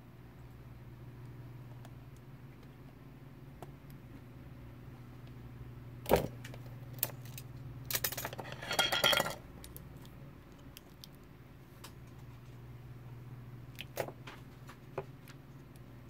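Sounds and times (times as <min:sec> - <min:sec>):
low steady hum: 0:00.0 - 0:16.0
metal tools clinking: 0:07.9 - 0:09.4.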